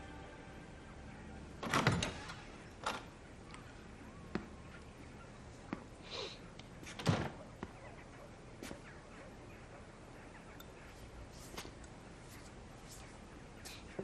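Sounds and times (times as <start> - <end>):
door clunking shut: 1.6 - 3.1.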